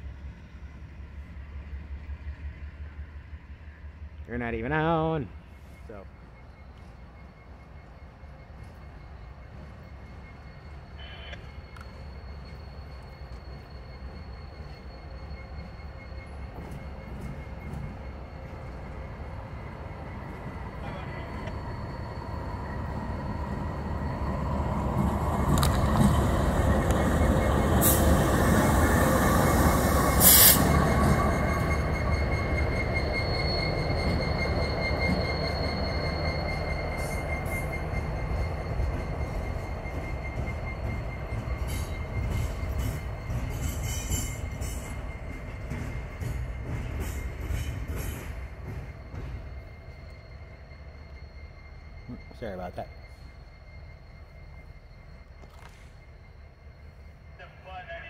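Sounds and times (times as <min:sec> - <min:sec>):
diesel locomotive engine rumble: 0:00.0 - 0:58.0
steady wheel squeal: 0:05.7 - 0:57.4.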